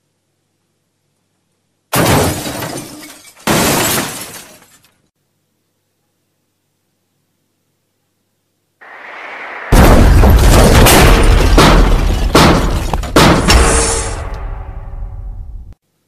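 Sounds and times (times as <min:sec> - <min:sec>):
rising rush: 0:08.8 - 0:11.3
heavy crashing impacts: 0:08.8 - 0:15.8
loud boom: 0:08.8 - 0:15.8.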